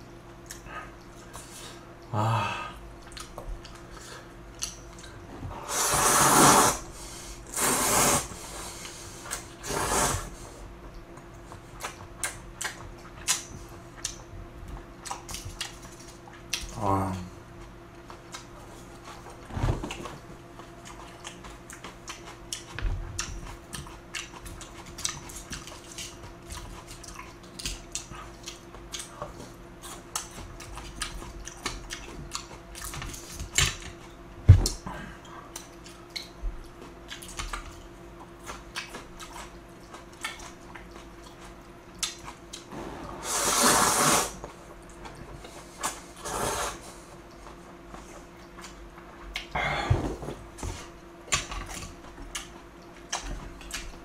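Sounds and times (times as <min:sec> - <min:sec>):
wet chewing: 0:03.0 - 0:05.2, 0:20.5 - 0:34.8, 0:35.5 - 0:42.7
noodle slurping: 0:05.7 - 0:06.8, 0:07.5 - 0:08.3, 0:09.6 - 0:10.3, 0:43.2 - 0:44.4, 0:46.2 - 0:46.8.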